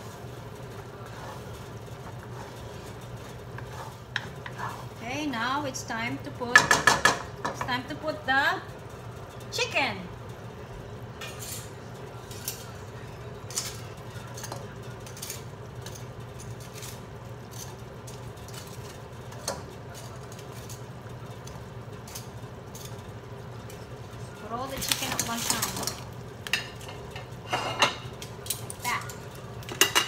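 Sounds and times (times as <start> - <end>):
sauce simmering in a frying pan: 0.0 - 5.9.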